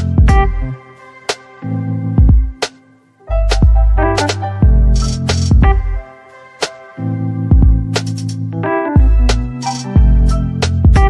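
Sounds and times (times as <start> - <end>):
music with deep bass and drums: 0.0 - 0.8, 2.2 - 2.7, 3.3 - 6.0, 7.5 - 11.0.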